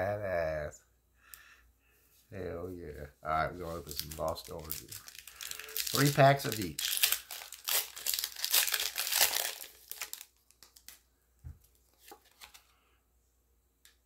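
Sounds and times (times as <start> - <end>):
foil wrapper crinkling: 3.6 - 11.0.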